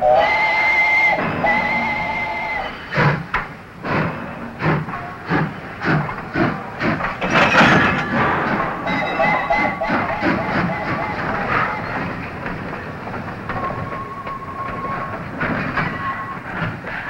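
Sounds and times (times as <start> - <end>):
two-tone steam whistle blast: 0.0 - 3.2, 8.7 - 12.1
hissing steam: 0.0 - 17.0
locomotive exhaust chuffs: 0.0 - 17.0.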